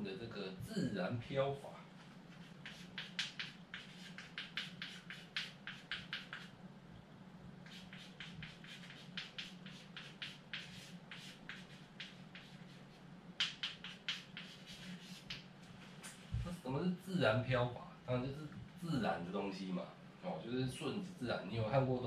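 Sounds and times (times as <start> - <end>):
chalk tapping and scratching: 2.0 - 6.6, 7.6 - 16.6.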